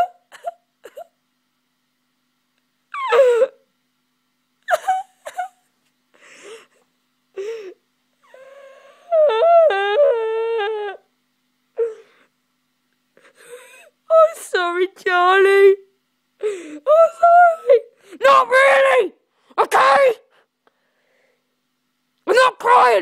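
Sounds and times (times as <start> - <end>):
person wailing and whimpering: 3.0 - 3.6, 4.7 - 5.6, 7.4 - 11.0, 11.8 - 12.2, 16.4 - 20.3.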